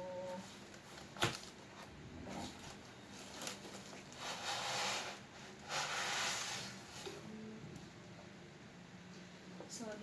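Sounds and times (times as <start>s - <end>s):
foam rubbing on cardboard: 4.2s - 7.0s.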